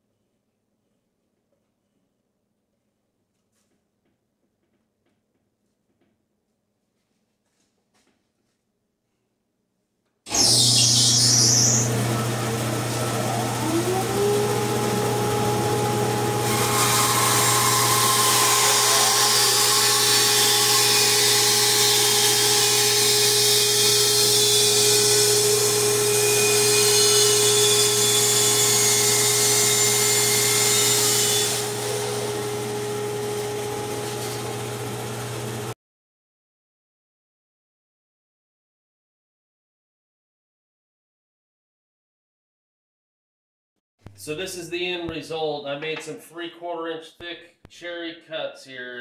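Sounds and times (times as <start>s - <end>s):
bandsaw motor humming: 10.3s - 35.7s.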